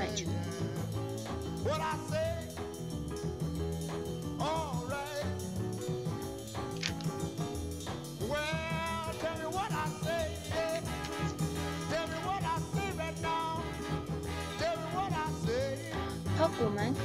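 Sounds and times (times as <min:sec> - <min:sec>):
repeating bass line: 0:00.0 - 0:17.0.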